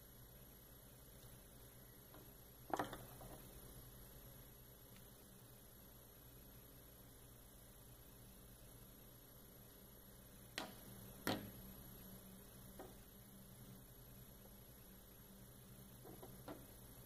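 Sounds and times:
electrical hum with high whine: 0.0s - 17.0s.

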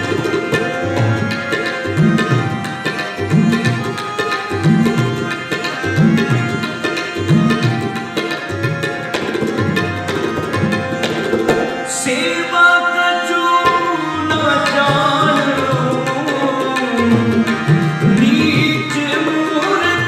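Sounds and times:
harmonium chords: 0.0s - 20.0s
tabla rhythm: 0.0s - 20.0s
man singing: 11.8s - 20.0s.

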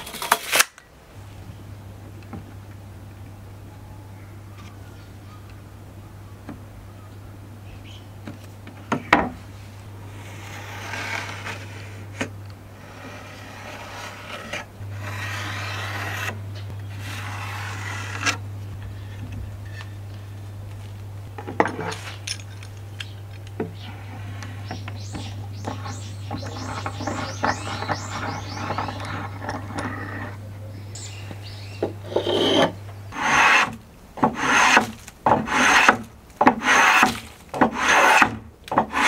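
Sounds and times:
steady low hum: 0.8s - 39.0s
pencil scratching on wood: 12.8s - 16.4s, 25.7s - 30.4s, 32.1s - 38.3s
wood and steel rule knocking: 24.5s - 30.4s, 31.8s - 39.0s.

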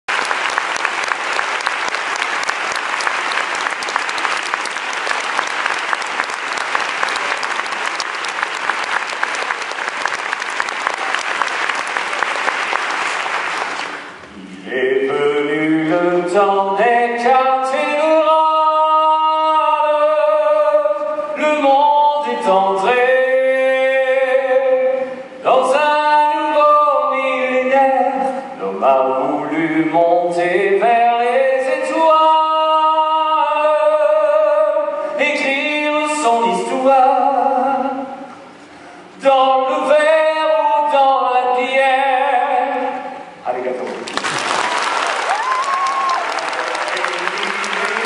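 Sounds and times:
audience applauding: 0.0s - 14.2s, 44.0s - 48.0s
man singing: 14.3s - 38.4s, 39.2s - 43.3s.

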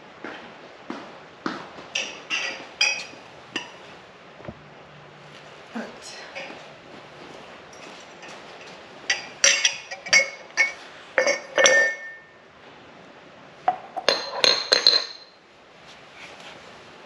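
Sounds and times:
dishes and glassware clinking: 2.0s - 3.8s, 7.7s - 12.4s, 13.7s - 15.4s.

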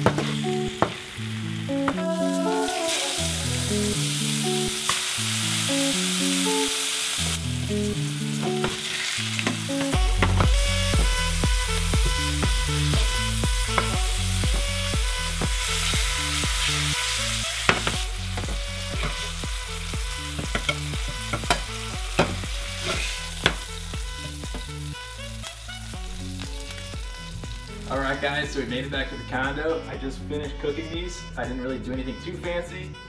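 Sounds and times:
fish fillets sizzling in oil: 0.0s - 28.2s
spatula scraping a pan: 16.6s - 19.4s, 20.3s - 23.6s.

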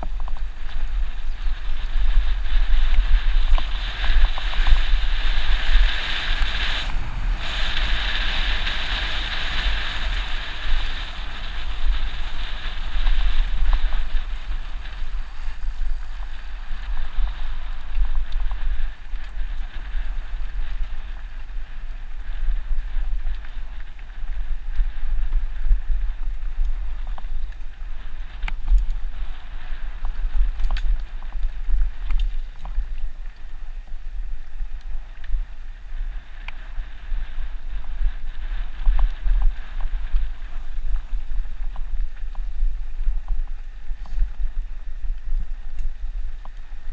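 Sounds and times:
wind buffeting microphone: 0.0s - 46.9s.

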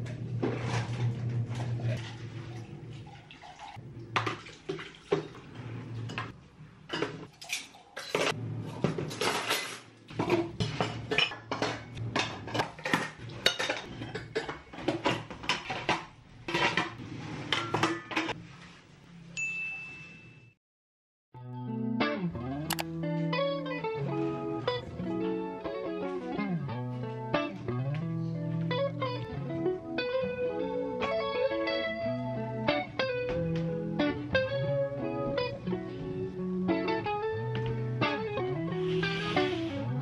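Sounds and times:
water splashing: 0.4s - 6.2s
dishes clinking in a sink: 4.2s - 16.9s, 17.5s - 18.4s.

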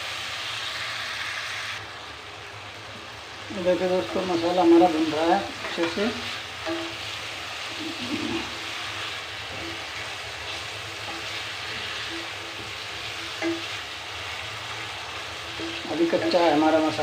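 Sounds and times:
masala sizzling in oil: 0.0s - 17.0s
wooden spatula stirring: 3.9s - 17.0s.

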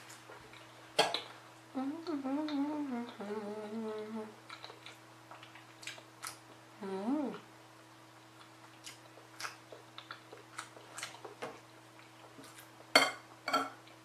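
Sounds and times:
woman humming while eating: 1.7s - 4.4s, 6.8s - 7.5s.

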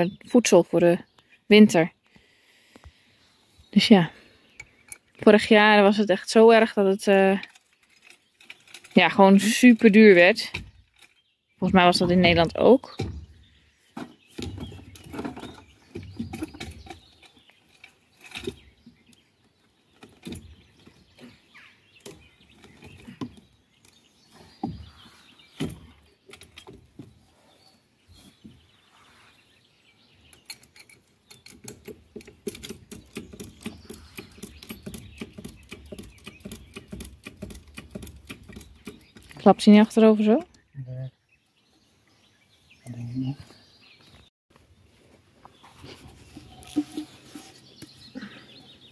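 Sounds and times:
wooden plank knocks and scrapes: 14.0s - 17.1s, 24.4s - 26.0s, 45.6s - 48.0s.

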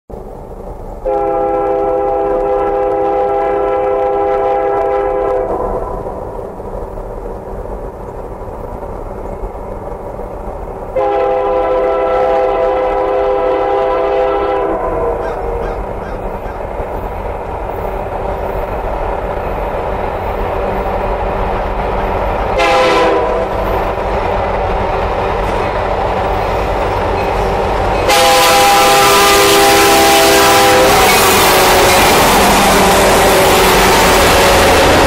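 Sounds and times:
locomotive air horn blasts: 1.0s - 5.7s, 11.0s - 15.2s, 22.5s - 23.8s, 27.4s - 34.9s.

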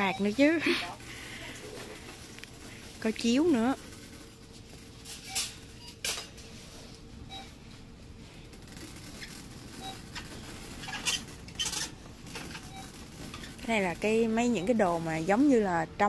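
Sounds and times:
wire shopping cart rattling: 1.7s - 6.4s, 8.6s - 15.9s.

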